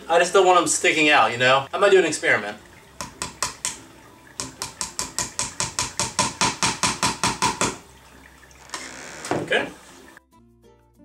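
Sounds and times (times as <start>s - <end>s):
hammer tapping nail into wood: 4.4s - 7.8s.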